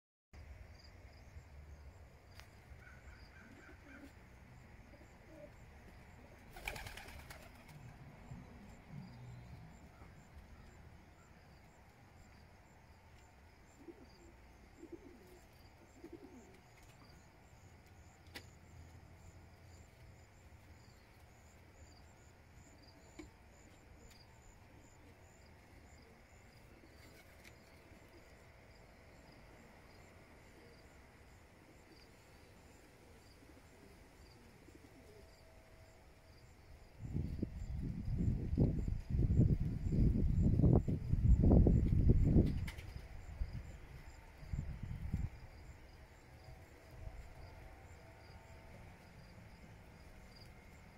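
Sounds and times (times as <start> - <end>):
pigeons cooing softly: 2.8 - 11.4, 13.6 - 17.4, 29.0 - 35.6.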